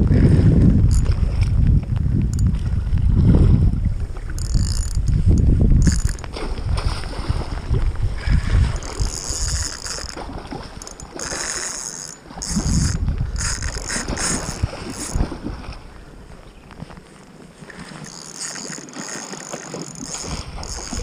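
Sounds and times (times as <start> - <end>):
wind buffeting microphone: 0.0 - 19.2, 19.9 - 21.0
fishing reel winding: 0.9 - 1.2, 4.3 - 6.3, 8.6 - 15.2, 17.7 - 21.0
water splashing: 4.2 - 15.9, 17.3 - 21.0.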